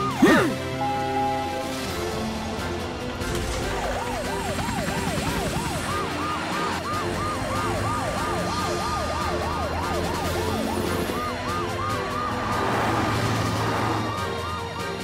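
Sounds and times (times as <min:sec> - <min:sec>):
cartoon sirens wailing: 0:00.0 - 0:01.9, 0:03.6 - 0:15.0.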